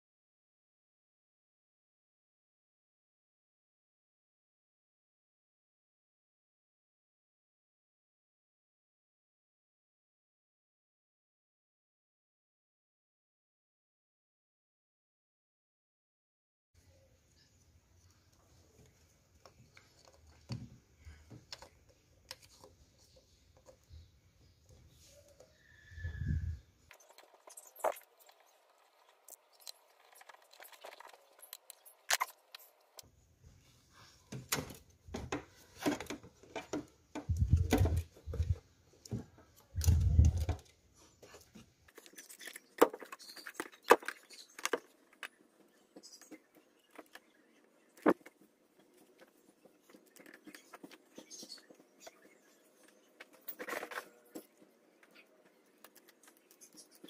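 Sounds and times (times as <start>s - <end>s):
plastic and metal clicks and scrapes: 19.4s - 24.0s, 26.9s - 33.1s, 34.5s - 57.0s.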